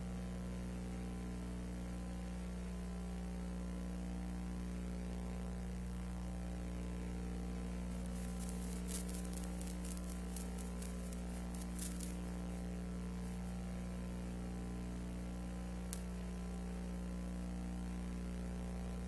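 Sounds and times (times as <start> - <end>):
electrical hum with hiss: 0.0 - 19.0
faint high crackles: 7.6 - 13.6.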